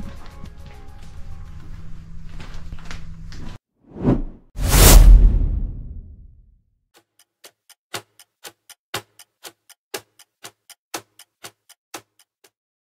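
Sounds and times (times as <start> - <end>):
sharp evenly spaced ticks: 7.0 - 12.6.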